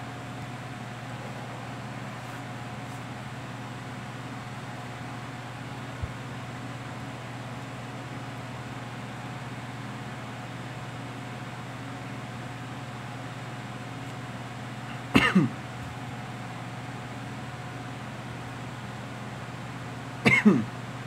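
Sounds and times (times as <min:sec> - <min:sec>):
steady low hum: 0:00.0 - 0:21.0
person coughing: 0:14.9 - 0:15.6, 0:20.2 - 0:20.7.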